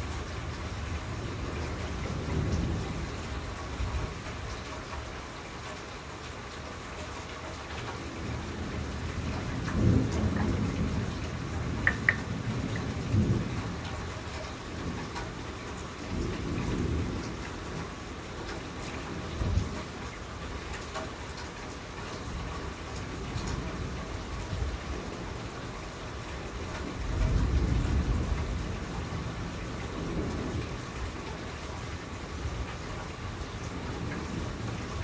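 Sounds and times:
steady rain: 0:00.0 - 0:35.0
thunder rumbling: 0:08.2 - 0:15.5
sharp taps: 0:11.8 - 0:12.3.

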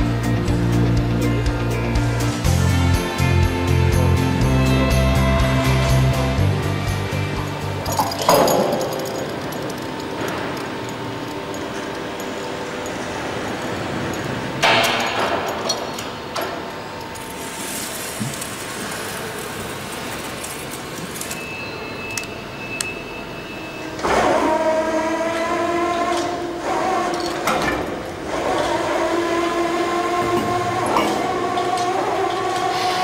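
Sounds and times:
general shop noise: 0:00.0 - 0:33.0
roller press machine whine: 0:00.0 - 0:33.0
metallic clank: 0:07.8 - 0:13.0.

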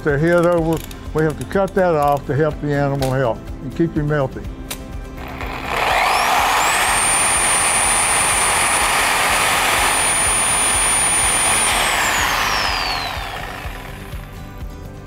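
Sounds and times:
power saw cutting antler: 0:05.2 - 0:14.4.

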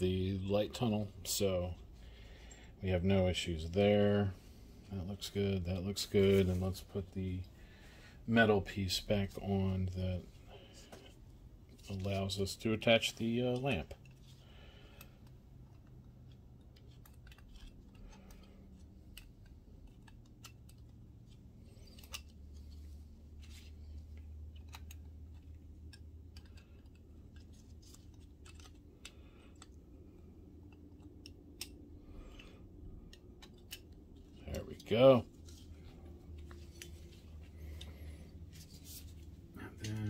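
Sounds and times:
faint clicks and metallic taps: 0:13.5 - 0:40.0.

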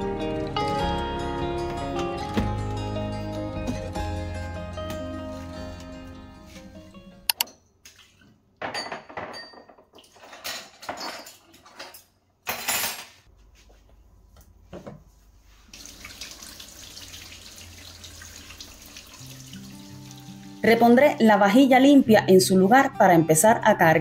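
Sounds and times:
dishes and cutlery clattering: 0:08.6 - 0:13.3.

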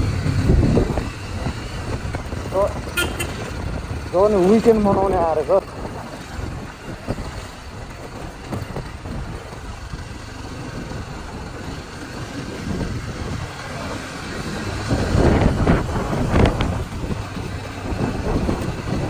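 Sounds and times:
road vehicle rumble: 0:00.0 - 0:19.0
wind and road noise: 0:00.0 - 0:19.0.

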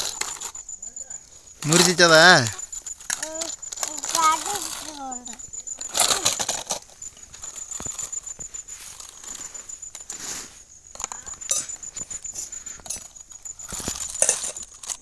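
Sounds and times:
faint high pulsing tone: 0:00.4 - 0:14.7
toy trucks scraping over dirt: 0:01.5 - 0:15.0.

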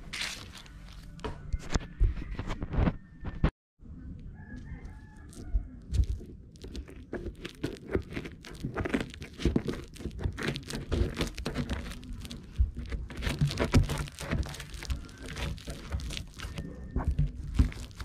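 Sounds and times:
packing tape crinkling and tearing: 0:06.0 - 0:18.0
blade scraping into plastic: 0:06.7 - 0:18.0.

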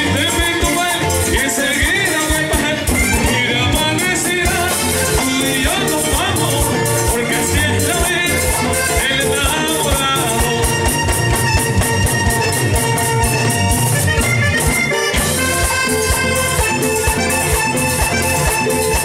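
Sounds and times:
button accordion melody: 0:00.0 - 0:19.0
steady beat: 0:00.0 - 0:19.0.

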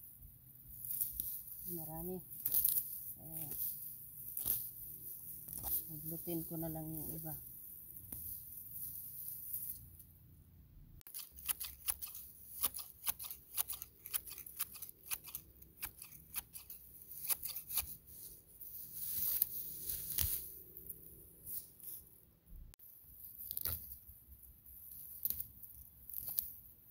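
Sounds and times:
grass rustling: 0:00.0 - 0:10.2, 0:11.0 - 0:22.2
garden shears snipping grass: 0:00.8 - 0:07.3, 0:11.1 - 0:18.0.

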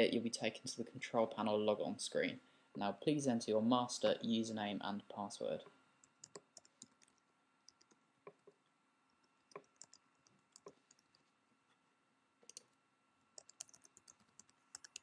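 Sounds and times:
keyboard typing: 0:06.0 - 0:08.6, 0:09.2 - 0:11.3, 0:12.4 - 0:12.8, 0:13.4 - 0:15.0.

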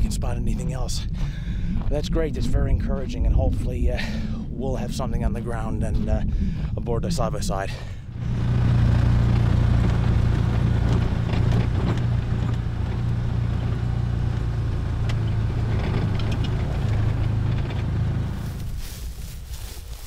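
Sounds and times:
small vehicle engine running: 0:08.2 - 0:19.6
light clicks and rattles: 0:15.0 - 0:17.9.

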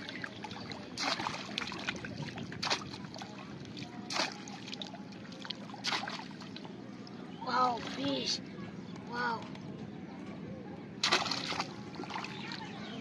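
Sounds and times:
fish trap splashing into water: 0:01.0 - 0:01.9, 0:02.6 - 0:03.1, 0:04.1 - 0:04.7, 0:05.8 - 0:06.4, 0:11.0 - 0:12.5.

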